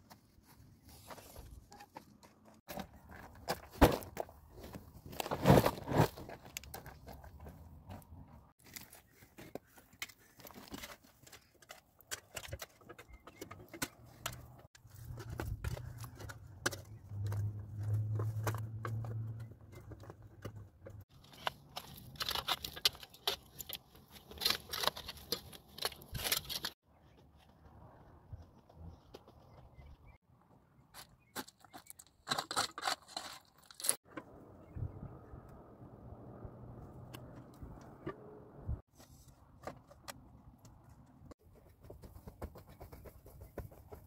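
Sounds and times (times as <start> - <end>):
soil and stones crunching: 0.0 - 34.7.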